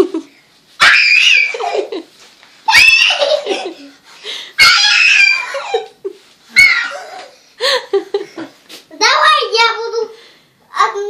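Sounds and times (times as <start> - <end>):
child shrieking with laughter: 0.8 - 1.9, 2.7 - 3.8, 4.6 - 7.4.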